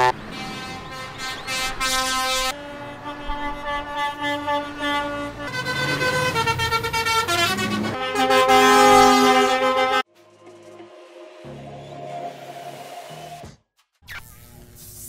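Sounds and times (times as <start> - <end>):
truck air horns blowing chords: 0.0 - 10.1.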